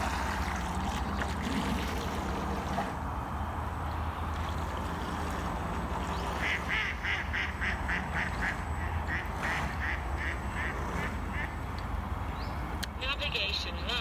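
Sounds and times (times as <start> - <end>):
duck quacking: 6.4 - 11.6.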